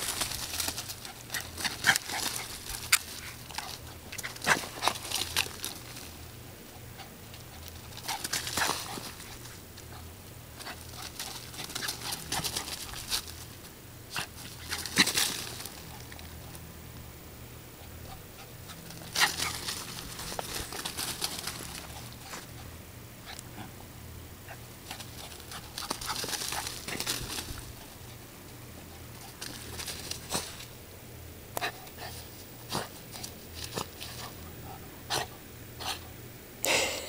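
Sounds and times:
dry leaves crunching: 0.0s - 16.6s, 18.3s - 22.6s, 24.7s - 28.4s, 29.0s - 30.8s.

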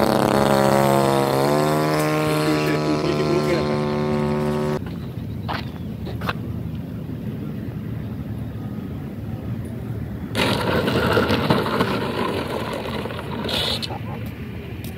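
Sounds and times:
model airplane engine: 0.0s - 4.9s, 7.3s - 14.7s
wheels rolling on dirt: 0.0s - 6.8s, 9.9s - 14.9s.

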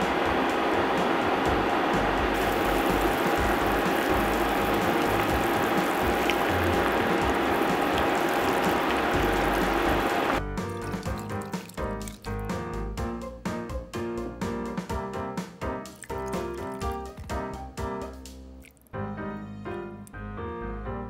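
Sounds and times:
soup boiling in a skillet: 1.5s - 12.7s, 15.9s - 17.4s.

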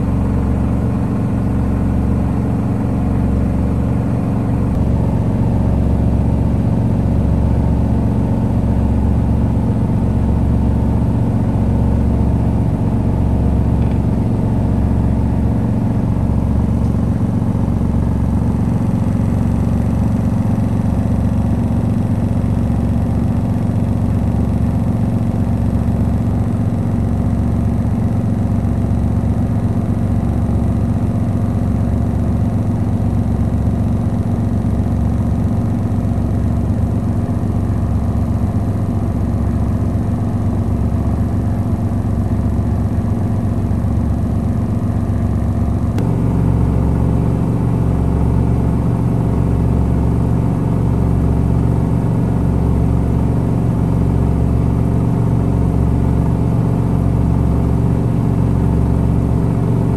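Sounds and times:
washing machine running: 28.6s - 59.9s.

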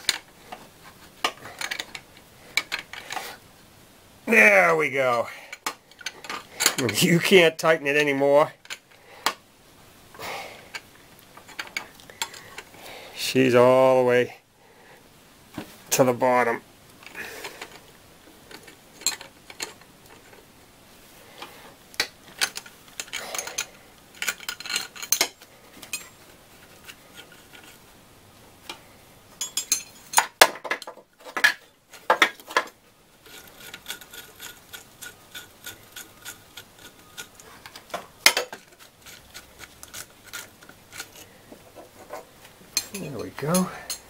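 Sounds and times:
metal tools clinking and scraping: 0.0s - 3.3s, 5.1s - 7.4s, 10.7s - 12.7s, 18.5s - 20.4s, 21.4s - 27.8s, 29.4s - 44.0s.

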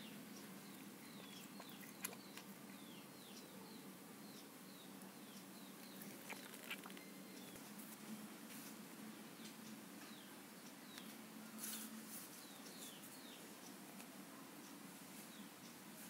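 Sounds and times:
faint bird chirps: 0.0s - 7.7s.

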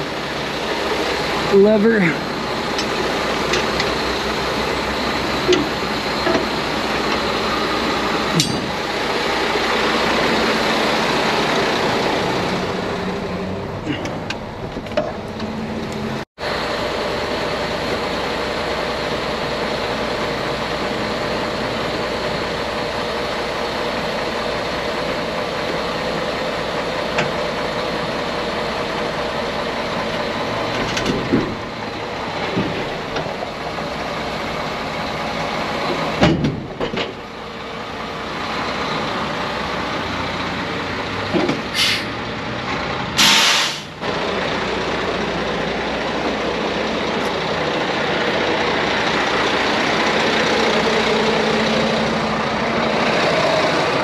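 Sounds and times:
diesel truck engine idling: 0.0s - 54.0s
air brake hisses: 41.7s - 42.2s, 43.2s - 44.0s.

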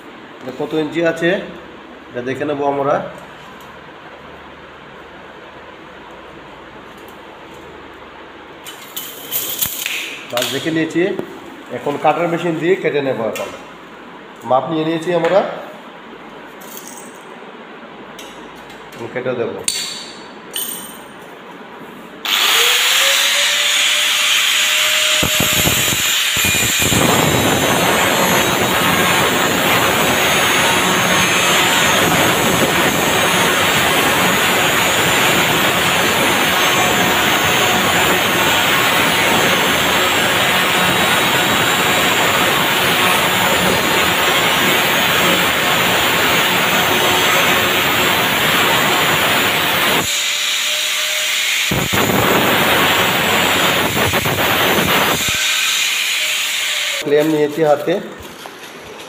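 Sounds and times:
angle grinder whine: 22.2s - 57.1s
grinding of metal being cut: 22.3s - 57.0s.

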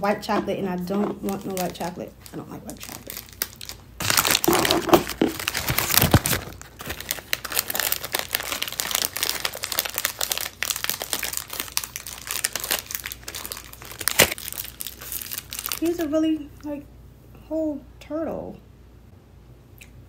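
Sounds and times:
wrappers crinkling: 1.2s - 16.3s.

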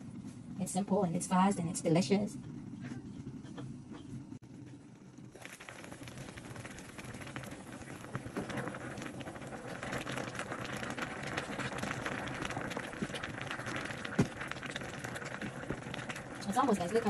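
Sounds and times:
soup bubbling and crackling: 4.2s - 17.0s.

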